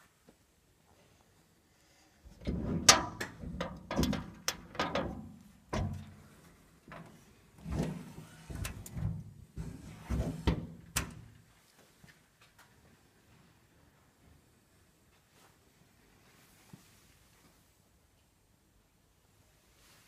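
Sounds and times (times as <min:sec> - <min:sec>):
sheet metal clunks and rattles: 0:02.4 - 0:11.3.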